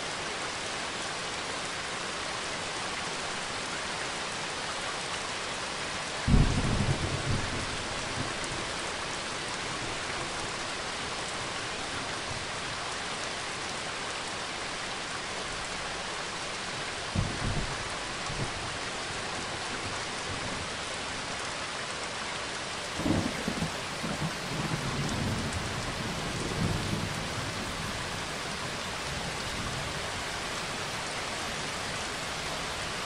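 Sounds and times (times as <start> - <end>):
steady rain: 0.0 - 33.0
low peal of thunder: 23.0 - 28.0.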